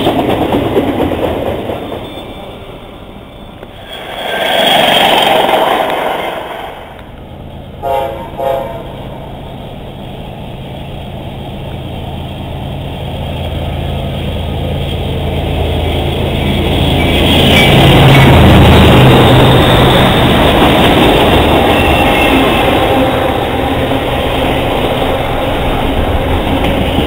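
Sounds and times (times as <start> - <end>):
diesel locomotives rumbling: 0.0 - 27.0
loud rushing noise: 3.8 - 7.2
locomotive air horn blasts: 7.8 - 9.0.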